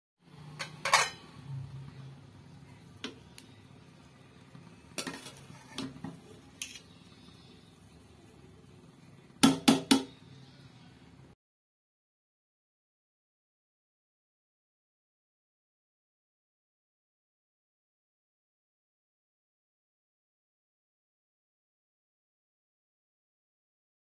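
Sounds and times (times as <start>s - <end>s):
metal spoon scraping a pot: 0.5s - 1.3s, 5.0s - 7.2s.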